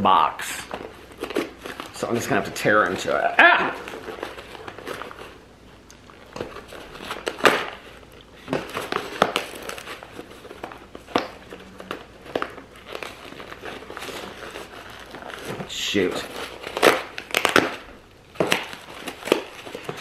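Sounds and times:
cardboard box tearing: 8.6 - 20.0.

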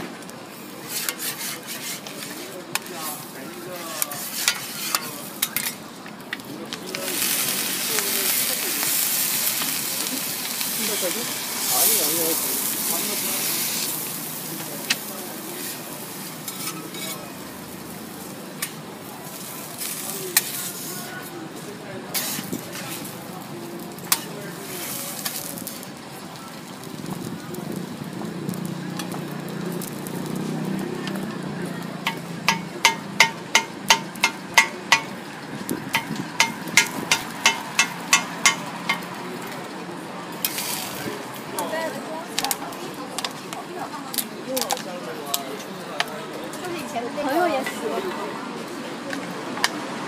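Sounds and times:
food sizzling on a griddle: 0.5 - 45.4
metal spatulas scraping: 0.8 - 2.9, 3.7 - 5.8, 15.6 - 17.3, 22.1 - 23.1, 40.4 - 41.0
spatula clacking on griddle: 0.9 - 2.9, 4.0 - 5.8, 6.9 - 17.2, 18.6 - 20.9, 22.1 - 23.2, 23.9 - 25.8, 29.0 - 30.0, 32.0 - 39.2
metal spatula clacking on griddle: 4.0 - 5.8, 16.4 - 17.2, 19.8 - 20.7, 22.1 - 23.1, 24.0 - 25.7, 32.0 - 35.2, 35.9 - 39.2.

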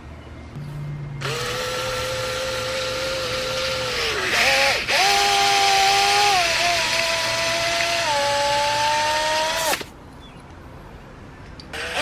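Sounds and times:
power tool motor whine: 1.2 - 9.9, 11.7 - 12.0.

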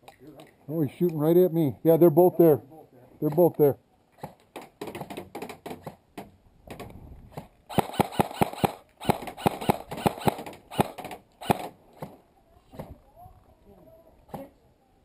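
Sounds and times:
airsoft rifle shots: 7.3 - 12.2.

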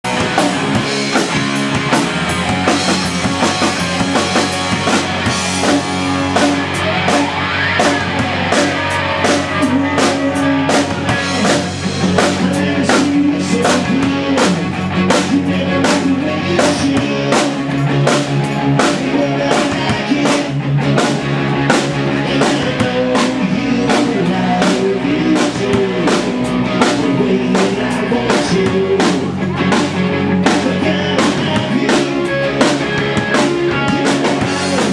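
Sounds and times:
live rock band playing: 0.0 - 34.9.

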